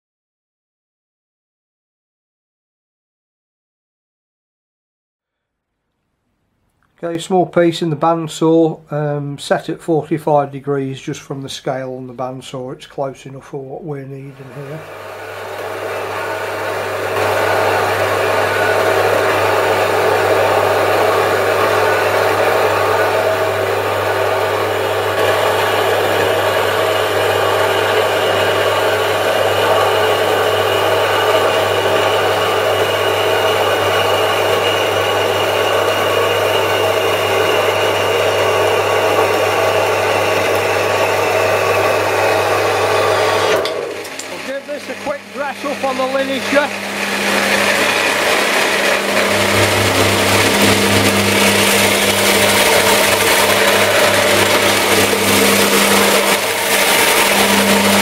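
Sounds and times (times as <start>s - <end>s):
bandsaw cutting steel: 14.2s - 58.0s
low motor hum: 14.3s - 58.0s.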